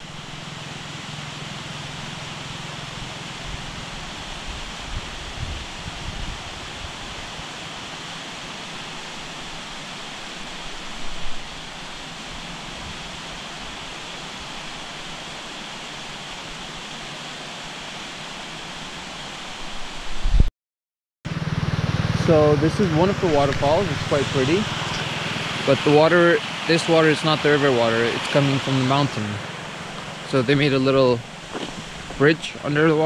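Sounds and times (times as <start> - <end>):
distant running water: 0.0 - 20.3, 21.3 - 33.0
wind buffeting microphone: 3.0 - 7.4, 22.4 - 26.5, 27.4 - 33.0.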